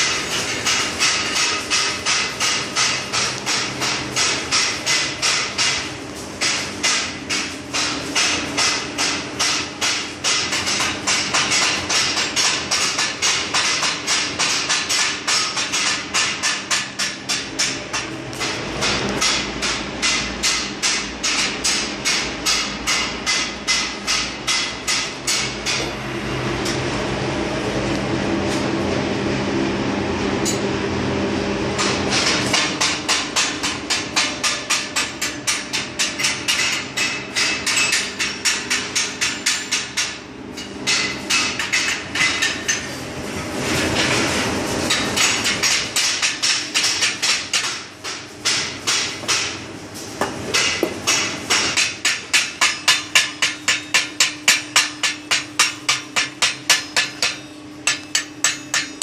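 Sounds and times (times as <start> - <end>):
chipping hammer tapping steel: 50.6 - 59.0.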